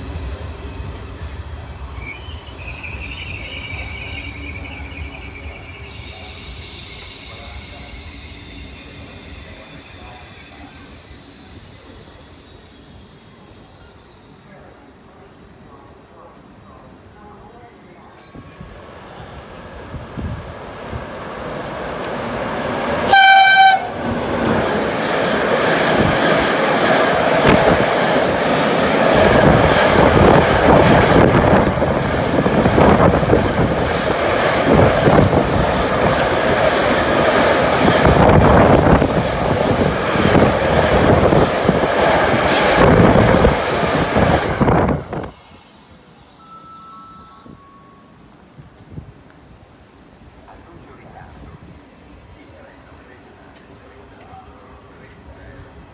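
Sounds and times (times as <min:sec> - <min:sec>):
train wheels clacking over rails: 0:22.0 - 0:44.8
train horn blast: 0:23.0 - 0:24.1.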